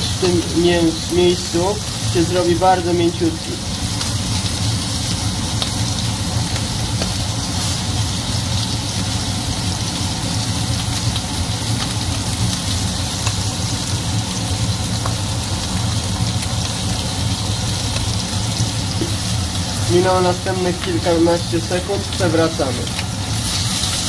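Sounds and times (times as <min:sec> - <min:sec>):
fan humming: 0:00.0 - 0:24.0
spattering fat crackles: 0:00.0 - 0:24.0
steak sizzling in a pan: 0:00.0 - 0:24.0.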